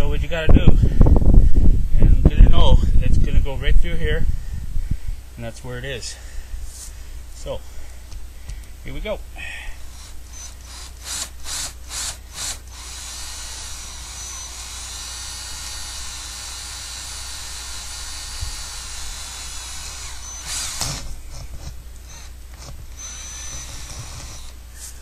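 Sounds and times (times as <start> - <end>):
power drill boring through wall: 9.9 - 24.6.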